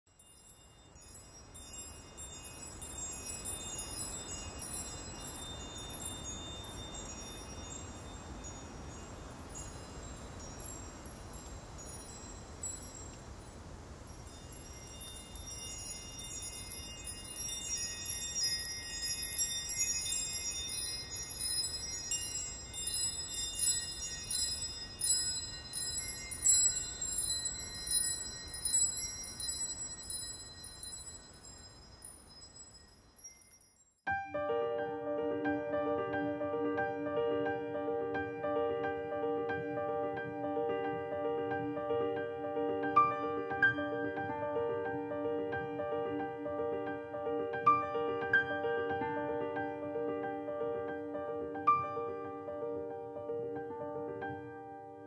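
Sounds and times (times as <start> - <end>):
chimes tinkling: 0.1 - 34.2.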